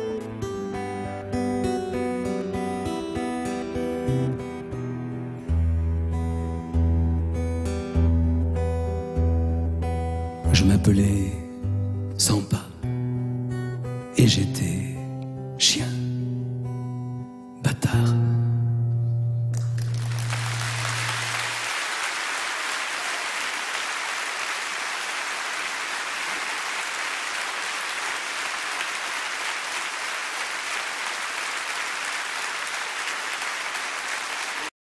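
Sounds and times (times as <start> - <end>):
audience applause: 19.6 - 34.7.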